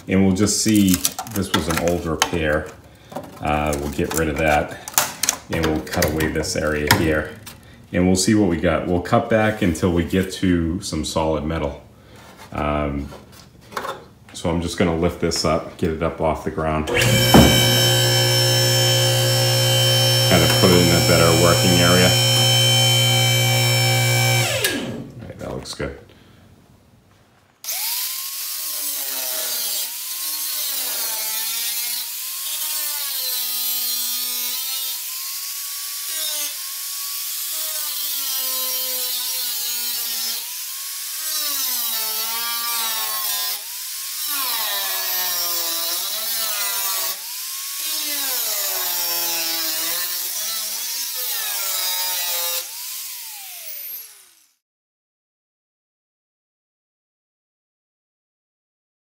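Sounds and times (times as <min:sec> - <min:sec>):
angle grinder cutting metal: 0:16.9 - 0:25.0, 0:27.6 - 0:54.6.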